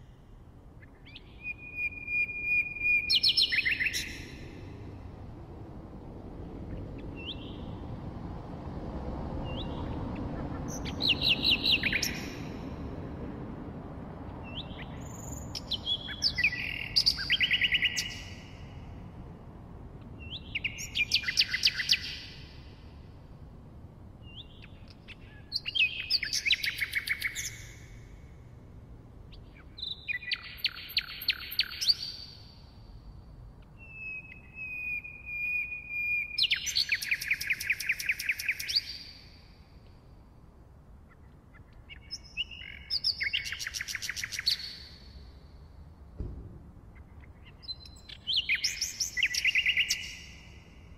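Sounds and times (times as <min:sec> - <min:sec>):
low background hiss: 0:00.0 - 0:50.9
nightingale singing: 0:00.8 - 0:04.4, 0:10.6 - 0:12.6, 0:14.4 - 0:18.7, 0:20.2 - 0:22.6, 0:24.2 - 0:28.0, 0:29.3 - 0:32.6, 0:33.6 - 0:39.5, 0:41.0 - 0:45.6, 0:46.8 - 0:50.9.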